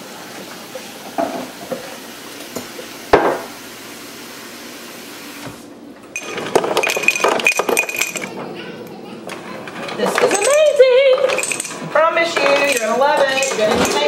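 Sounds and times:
ice cubes clinking in a glass: 6.2s - 8.3s, 10.1s - 14.0s.

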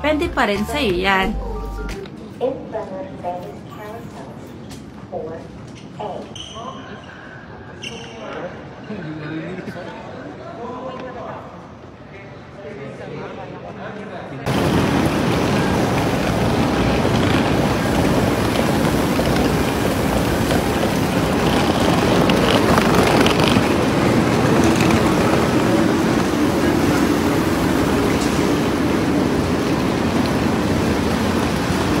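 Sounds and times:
suitcase wheels rumbling on pavement: 14.5s - 32.0s
wind buffeting microphone: 14.5s - 32.0s.

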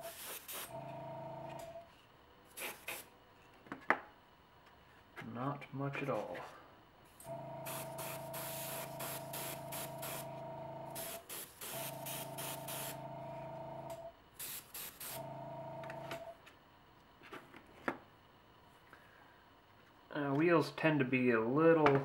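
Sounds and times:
airbrush spraying hiss: 0.0s - 0.7s, 7.6s - 10.3s, 11.0s - 13.0s, 14.4s - 15.2s
compressor motor humming: 0.6s - 1.8s, 7.1s - 14.2s, 15.0s - 16.4s.

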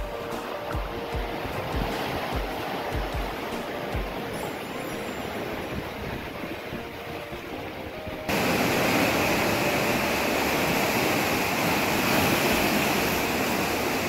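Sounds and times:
surf washing over rocks: 0.0s - 14.0s.

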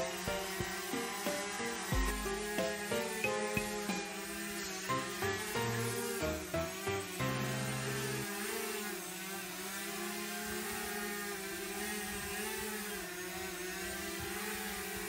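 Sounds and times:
background music: 0.0s - 8.3s
drone propellers whirring: 0.0s - 15.0s.

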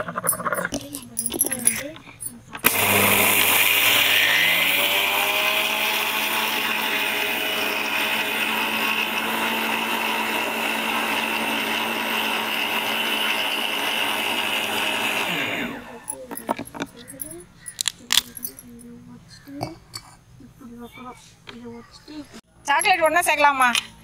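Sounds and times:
mixer grinder grinding sugar: 2.6s - 17.2s.

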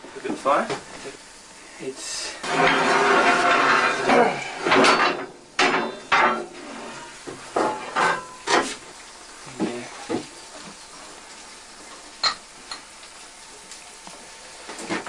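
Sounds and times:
steel tools scraping: 2.4s - 7.2s
steel tools clanking: 2.4s - 8.7s.

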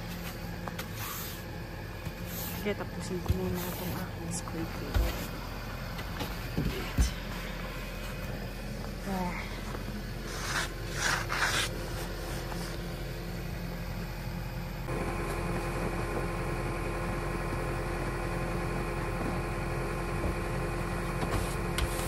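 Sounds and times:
car engine idling: 4.0s - 21.2s
brush scraping snow off windshield: 10.2s - 12.9s.

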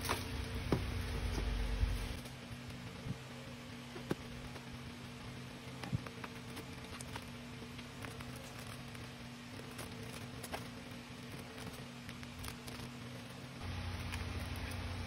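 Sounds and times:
steady low hum: 0.0s - 15.0s
plastic wrapping rustling: 5.7s - 15.0s.

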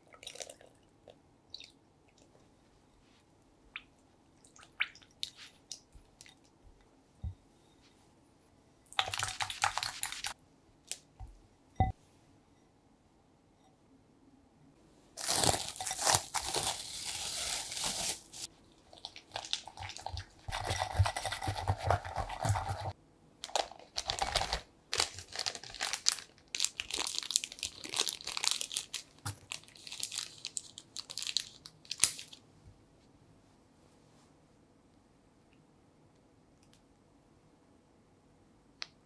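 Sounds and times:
plastic bag crinkling and rustling: 15.2s - 32.4s.

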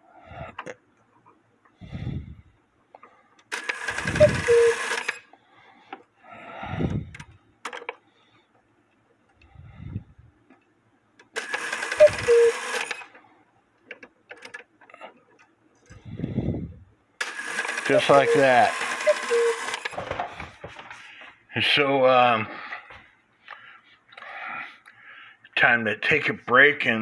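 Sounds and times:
cuckoo clock call: 3.9s - 5.2s, 11.8s - 12.9s, 17.9s - 19.8s.

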